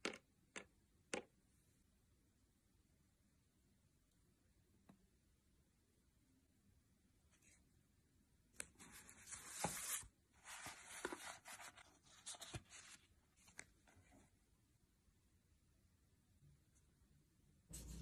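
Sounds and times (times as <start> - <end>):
paper sliding and rustling: 8.8 - 13.6.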